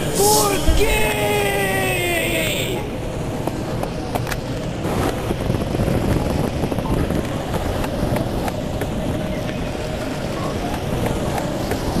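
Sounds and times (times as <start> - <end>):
wind rumble on microphone: 2.9 - 12.0.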